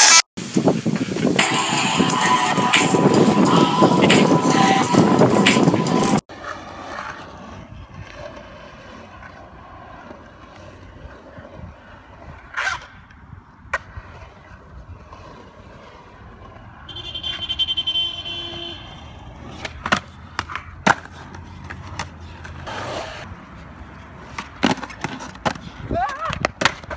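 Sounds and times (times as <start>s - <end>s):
skateboard wheels rolling on concrete: 0.0s - 26.9s
music: 1.4s - 6.2s
skateboard clacks: 19.4s - 23.3s, 24.2s - 26.9s.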